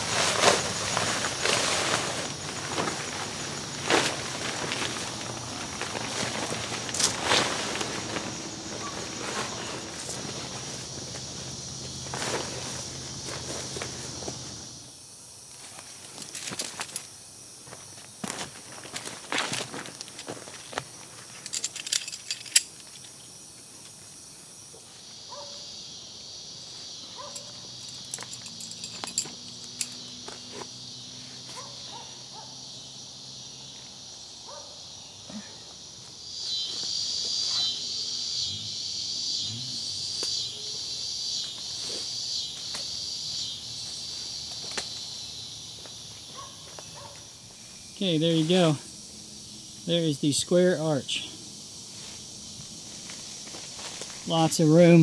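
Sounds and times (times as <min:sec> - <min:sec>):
tarp clicking and rustling: 0:00.0 - 0:11.4, 0:12.0 - 0:14.6, 0:15.7 - 0:17.0
high-pitched insect chorus: 0:00.0 - 0:55.0.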